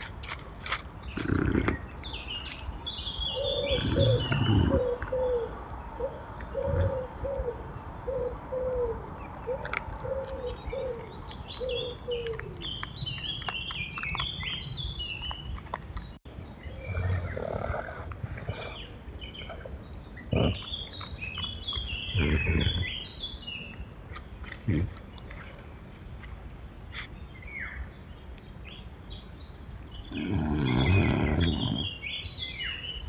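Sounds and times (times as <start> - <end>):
songbirds chirping: 0.0 - 33.0
pigeon cooing: 3.3 - 12.7, 30.1 - 32.0.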